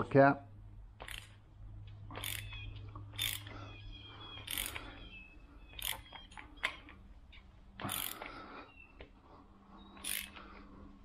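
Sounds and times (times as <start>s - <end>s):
sharp metal clicks and scrapes: 1.0s - 3.6s, 4.4s - 5.0s, 5.8s - 8.4s, 9.9s - 10.5s.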